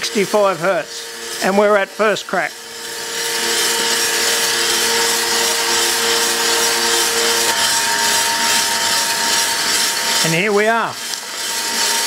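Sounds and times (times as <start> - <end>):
faint motor hum: 0.0 - 12.0.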